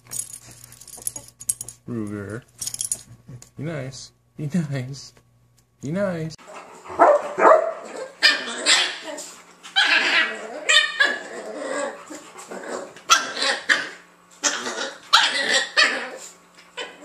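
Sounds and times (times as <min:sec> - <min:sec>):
dogs play growling: 0:06.4 - 0:07.0, 0:07.7 - 0:17.0
dogs barking: 0:06.6 - 0:12.0, 0:12.7 - 0:17.0.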